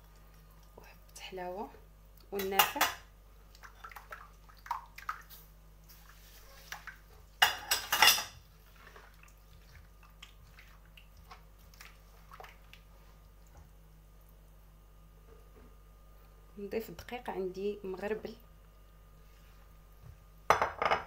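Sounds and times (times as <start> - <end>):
liquid sloshing in clay bowl: 8.4 - 13.7.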